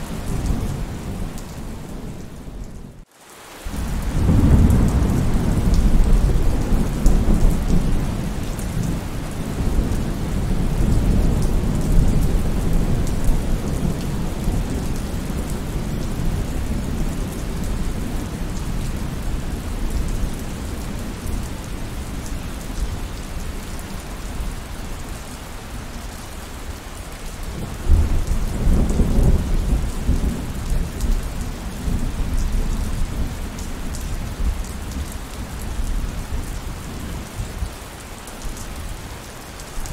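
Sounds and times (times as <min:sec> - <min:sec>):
heavy rain: 0:00.0 - 0:39.9
rolling thunder: 0:27.6 - 0:34.6.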